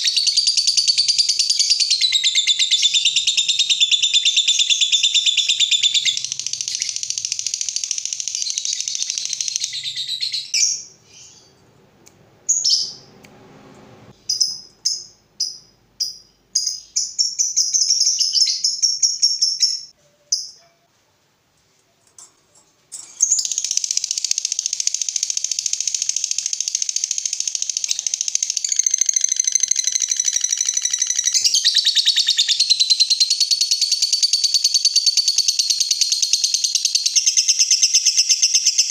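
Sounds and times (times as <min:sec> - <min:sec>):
lovebird high-pitched trill: 0:00.0 - 0:11.5, 0:23.0 - 0:38.9
lovebird chirps: 0:00.0 - 0:11.6, 0:12.5 - 0:13.2, 0:14.1 - 0:20.7, 0:22.9 - 0:38.9.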